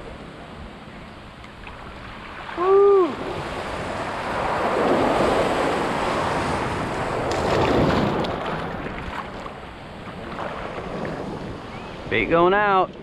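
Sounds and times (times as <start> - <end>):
surf waves washing in: 0.0 - 13.0
wind on microphone: 0.0 - 13.0
water splashing: 1.5 - 11.7.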